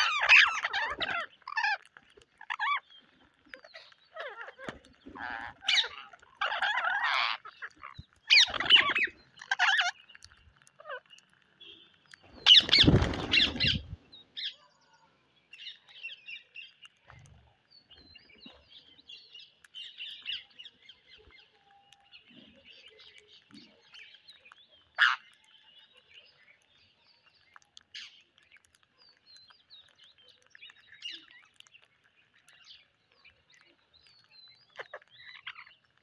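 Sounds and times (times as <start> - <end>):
parakeets squawking: 0.0 - 2.9, 3.5 - 11.1, 12.4 - 13.9, 25.0 - 25.3
parakeet chirps: 0.0 - 14.7, 19.2 - 36.0.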